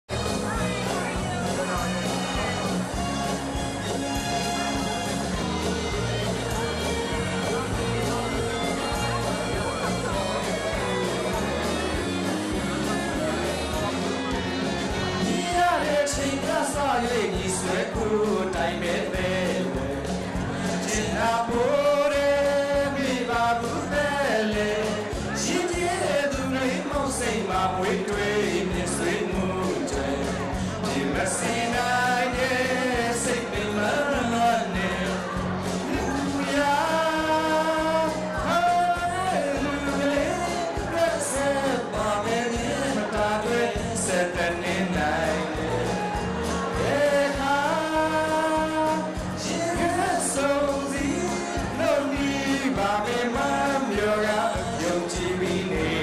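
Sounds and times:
instrumental accompaniment: 0.1 - 56.0
man singing into microphone: 14.8 - 56.0.

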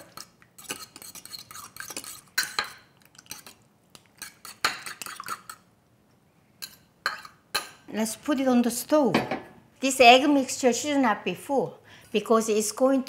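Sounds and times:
spoon clinking and scraping bowl: 0.0 - 5.6, 6.6 - 7.8.

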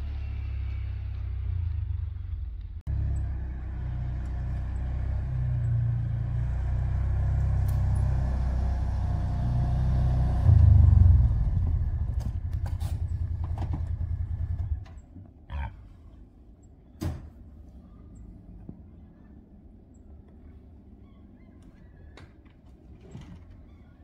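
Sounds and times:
vehicle engine idling: 0.0 - 15.1.

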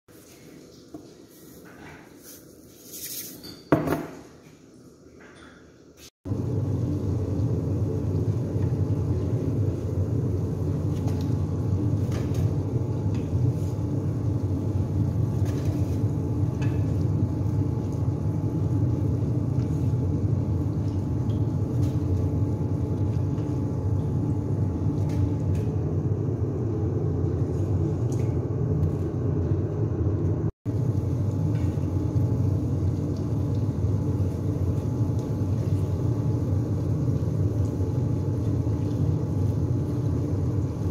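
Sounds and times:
deep-frying oil rumbling and crackling: 6.2 - 40.9.

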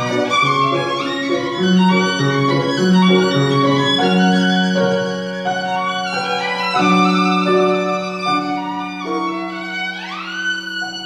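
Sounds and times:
grand piano accompaniment: 0.0 - 11.0
violin playing slow melody: 0.0 - 11.0.

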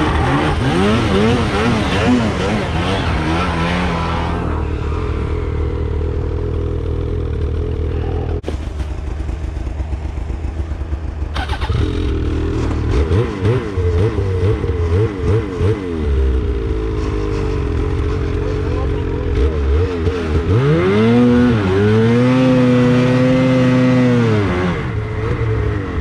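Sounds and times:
snowmobile throttle blips: 0.0 - 6.3
snowmobile engines idling: 0.0 - 20.6.

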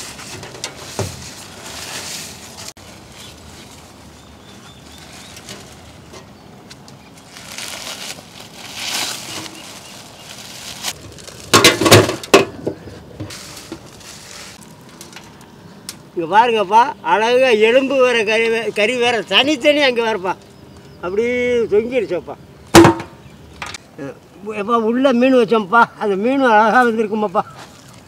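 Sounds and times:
leaves and foil rustling: 0.0 - 15.9, 17.9 - 20.0.

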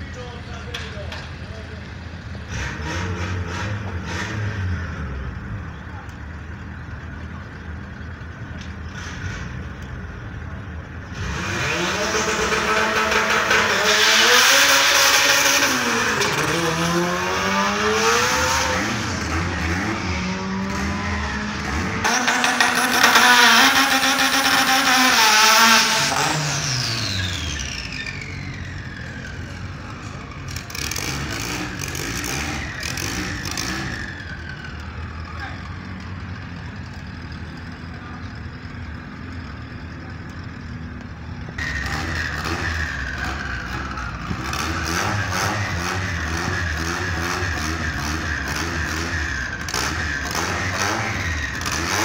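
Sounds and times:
low engine rumble: 0.0 - 13.7, 32.6 - 44.6
car engine revving: 0.2 - 52.0.

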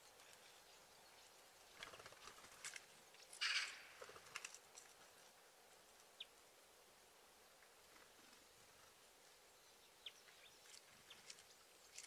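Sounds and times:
bird wing flutter: 1.7 - 4.6.

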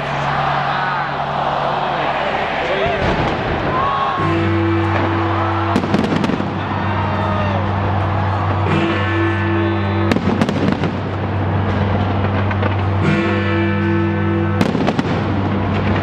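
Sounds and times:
fireworks bangs: 3.0 - 16.0
music with low notes: 4.1 - 16.0.

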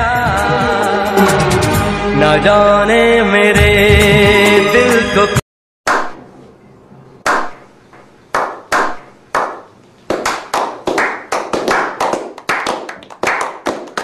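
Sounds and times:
hands clapping rhythmically: 7.3 - 7.6, 8.3 - 14.0.

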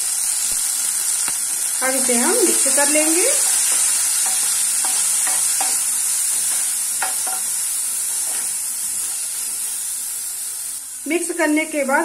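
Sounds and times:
vegetables sizzling in oil: 0.0 - 12.0
spatula scraping pan: 2.6 - 9.6.

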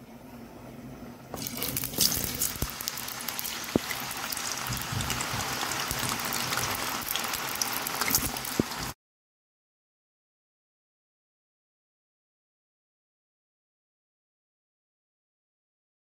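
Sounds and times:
potatoes deep-frying in oil: 1.3 - 9.0.

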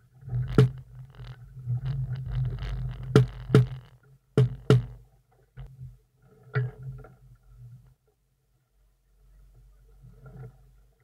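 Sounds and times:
sharp knocks: 3.0 - 5.0.

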